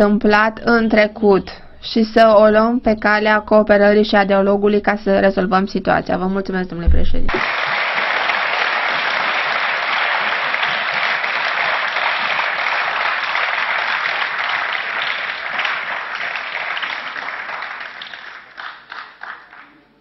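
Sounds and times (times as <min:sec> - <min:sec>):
audience applauding: 0:07.3 - 0:20.0.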